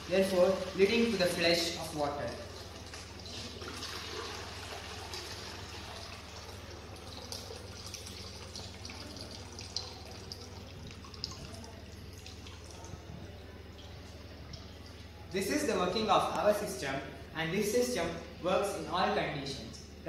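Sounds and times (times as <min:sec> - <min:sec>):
water running into plastic bucket: 0:00.0 - 0:15.3
water drips: 0:00.0 - 0:15.4.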